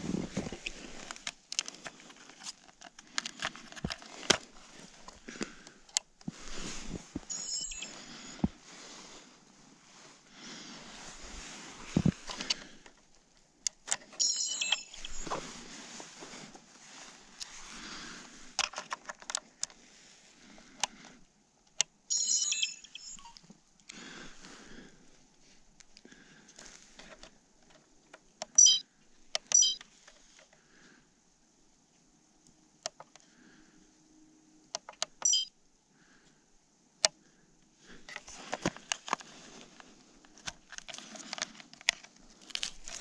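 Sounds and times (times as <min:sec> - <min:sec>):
electronic stepped-tone beep: 0:22.1 - 0:23.4, 0:28.6 - 0:28.8, 0:29.6 - 0:29.8, 0:35.2 - 0:35.5.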